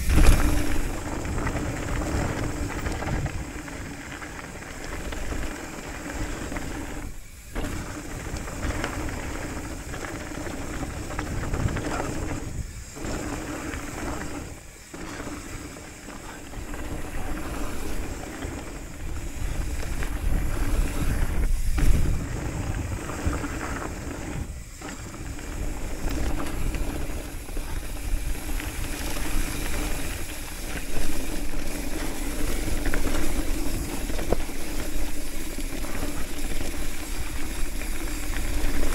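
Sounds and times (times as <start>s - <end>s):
wind on microphone: 0.0s - 14.5s, 16.4s - 38.9s
bike tyres rolling over gravel: 0.0s - 38.9s.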